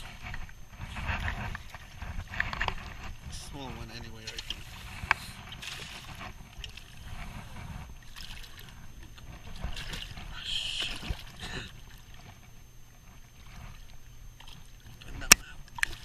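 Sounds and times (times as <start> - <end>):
fish flopping in water: 4.2 - 12.4.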